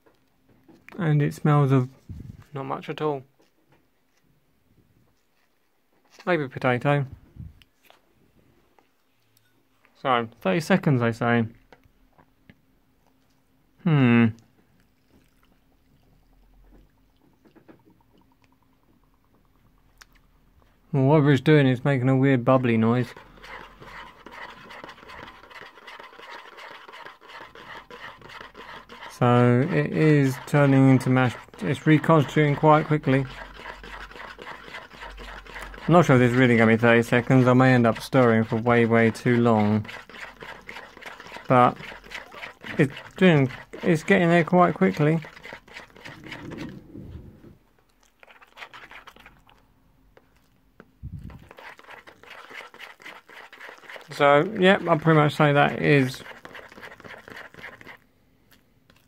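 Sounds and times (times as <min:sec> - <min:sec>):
fork stirring mashed potato: 0:22.2 - 0:46.8, 0:48.0 - 0:49.6, 0:50.2 - 0:58.0.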